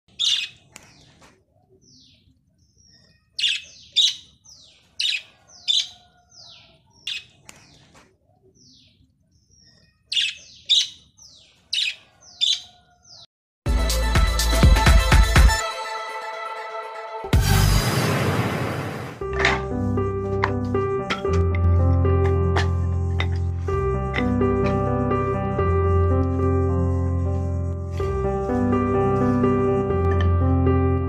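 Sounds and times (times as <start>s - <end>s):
parrots chirping shrilly: 0.1s - 0.6s, 3.4s - 4.3s
electronic music: 13.7s - 17.9s.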